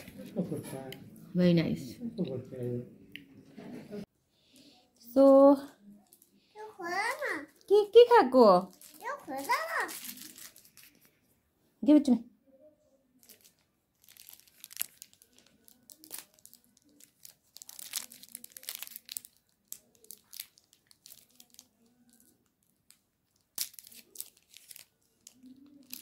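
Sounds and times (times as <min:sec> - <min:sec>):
plastic wrapper crinkling and tearing: 0:08.6 - 0:11.2, 0:13.2 - 0:26.0.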